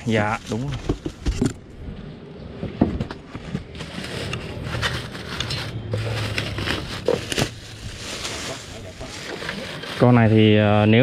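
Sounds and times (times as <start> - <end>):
plastic bag crinkling: 3.7 - 10.4.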